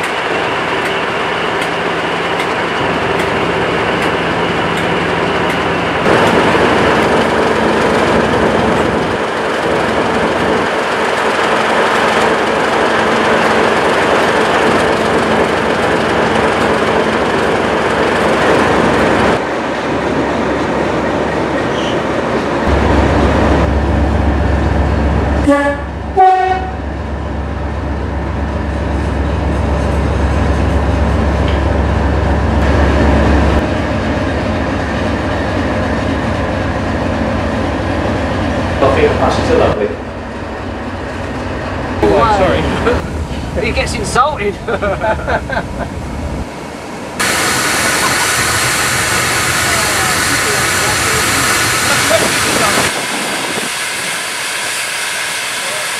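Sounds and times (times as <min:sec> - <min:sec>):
diesel locomotive engine running: 0:00.0 - 0:55.9
locomotive horn: 0:25.4 - 0:26.9.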